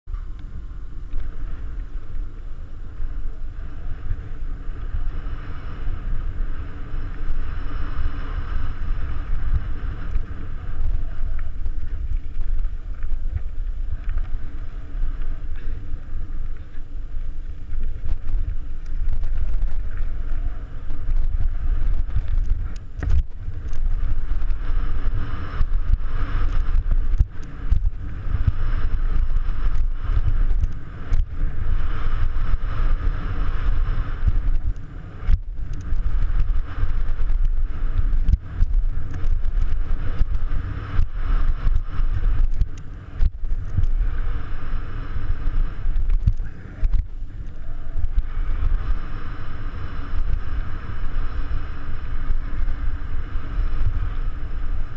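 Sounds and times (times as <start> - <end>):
wind buffeting microphone: 0.0 - 54.9
bike tyres rumbling on gravel: 0.1 - 54.9
bike knocking and rattling: 6.2 - 44.5.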